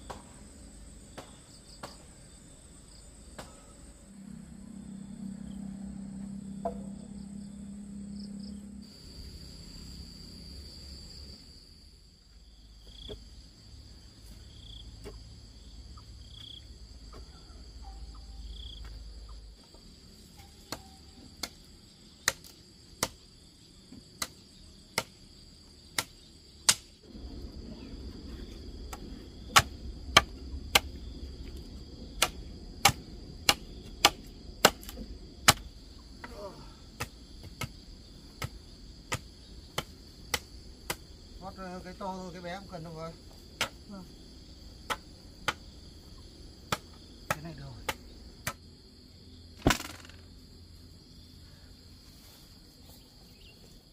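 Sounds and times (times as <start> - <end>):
insects chirring: 0.0 - 53.9
sharp tool strikes: 26.0 - 26.9, 29.5 - 30.9.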